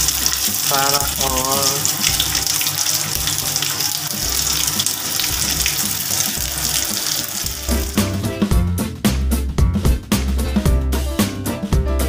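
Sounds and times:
meat sizzling in hot oil: 0.0 - 8.3.

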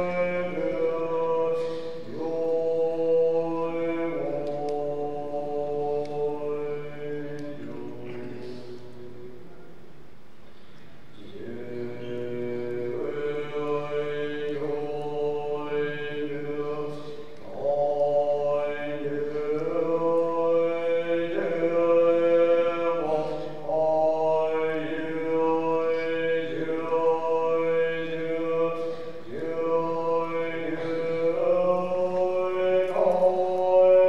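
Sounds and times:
man chanting: 0.0 - 9.9, 11.2 - 34.0
breaths: 1.5 - 2.1, 10.4 - 11.2, 16.9 - 17.4, 23.0 - 23.7, 28.7 - 29.3, 30.7 - 31.2.

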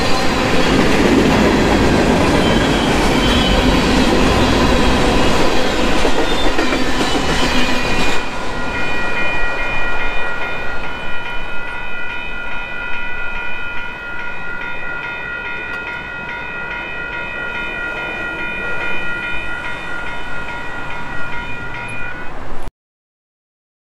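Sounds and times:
train wheels clattering: 0.0 - 13.1
railroad crossing bell ringing: 0.0 - 22.7.

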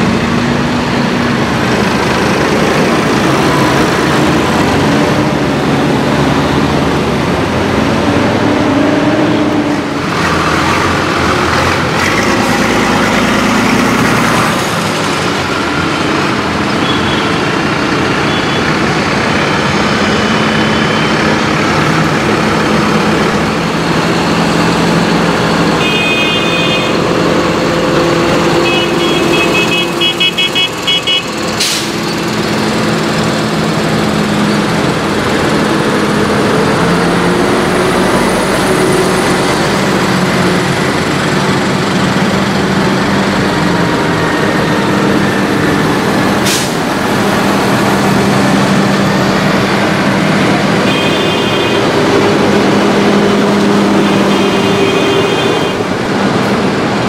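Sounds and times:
tractors driving past: 0.0 - 57.0.

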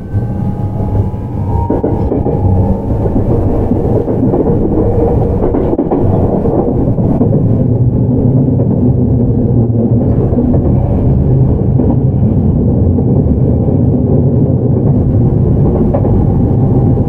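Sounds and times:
train wheels rumbling on rails: 0.0 - 17.0.

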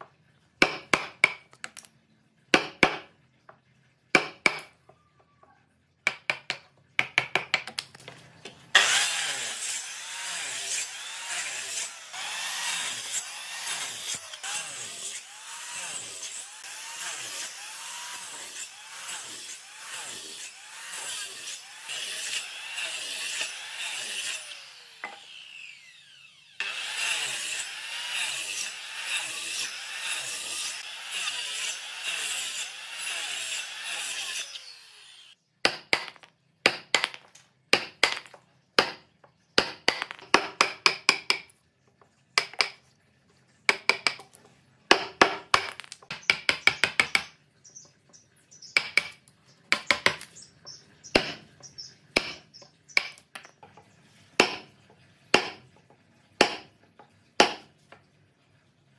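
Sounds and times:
mallet tapping wood chisel: 0.6 - 1.9, 4.2 - 4.7, 6.1 - 7.9, 39.6 - 41.5, 43.7 - 44.3, 44.9 - 47.3, 48.8 - 50.4, 52.2 - 53.8, 55.4 - 55.6, 56.4 - 56.7, 57.4 - 57.6
circular saw cutting wood: 8.7 - 35.4
saw winding down whine: 23.8 - 27.4.

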